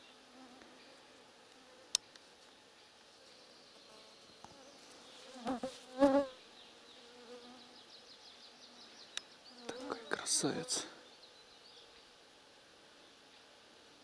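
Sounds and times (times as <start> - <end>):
flying insect buzzing: 0.1 - 2.2, 3.2 - 8.8.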